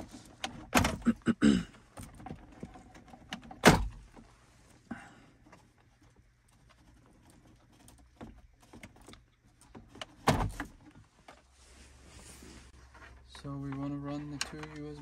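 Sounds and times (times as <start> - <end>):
plugs and wires rattling: 0.0 - 4.4, 5.3 - 11.5, 12.8 - 15.0.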